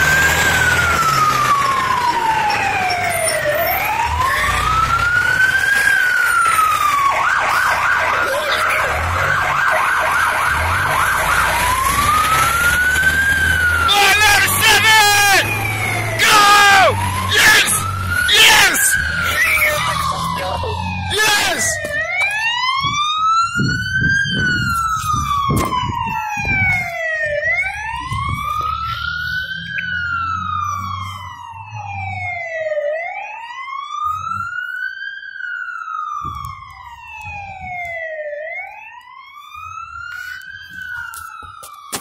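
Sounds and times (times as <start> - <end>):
siren wailing: 0.0 - 42.0
low vehicle rumble: 21.8 - 32.6.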